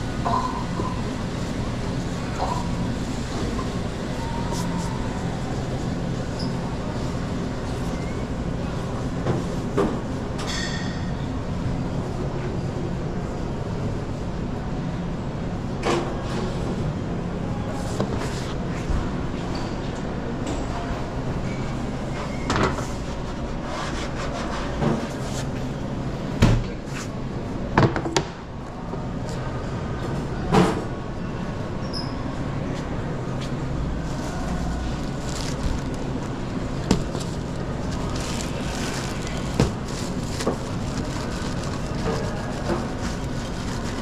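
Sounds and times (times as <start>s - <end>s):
knocks and clatters of kitchen work: 9.2s - 11.2s, 22.1s - 22.9s, 23.8s - 25.2s, 26.4s - 26.8s, 27.8s - 28.4s, 38.8s - 43.8s
kitchen equipment humming: 34.0s - 44.0s.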